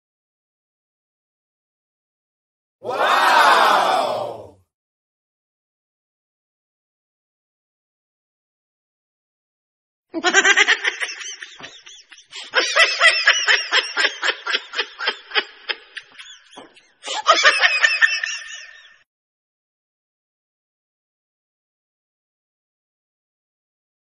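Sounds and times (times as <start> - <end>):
high-pitched giggling laugh: 10.2 - 19.0.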